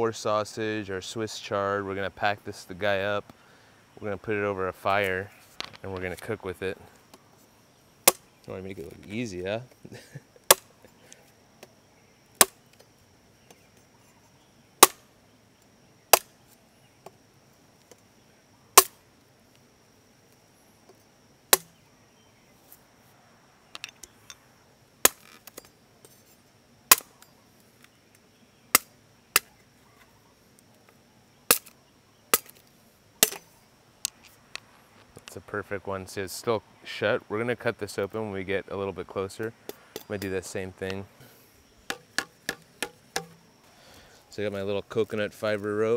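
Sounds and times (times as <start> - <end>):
machete chopping bamboo: 8.0 - 8.3, 10.5 - 10.7, 12.4 - 12.6, 14.8 - 15.1, 16.1 - 16.3, 18.8 - 19.0, 21.5 - 21.8, 25.0 - 25.6, 26.9 - 27.2, 28.7 - 29.5, 31.5 - 31.7, 32.3 - 32.6, 33.2 - 33.4, 41.9 - 43.4.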